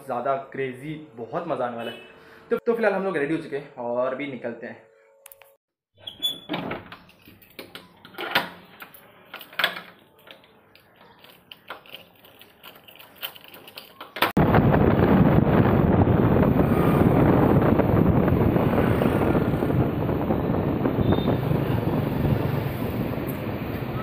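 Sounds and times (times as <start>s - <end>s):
wind rushing on microphone: 14.4s - 24.0s.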